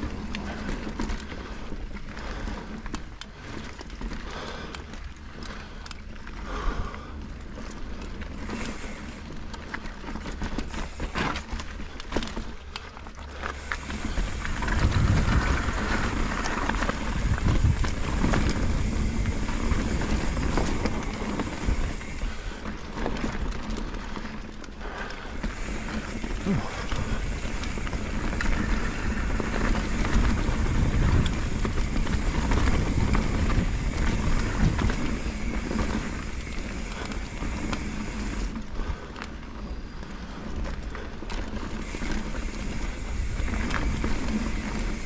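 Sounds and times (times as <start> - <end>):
steady rumble: 0.0 - 39.3, 41.8 - 45.0
bike clattering and rattling: 0.0 - 45.0
tyres rolling on dirt: 0.0 - 45.0.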